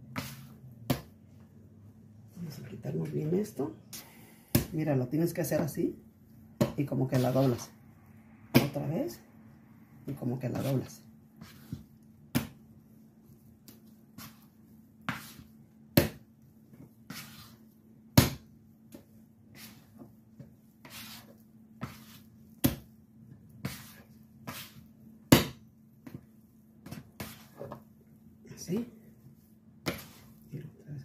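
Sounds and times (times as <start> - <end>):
dough slapping on wooden board: 0.0 - 1.4, 6.6 - 7.6, 11.4 - 12.8, 13.5 - 28.0, 29.8 - 30.4.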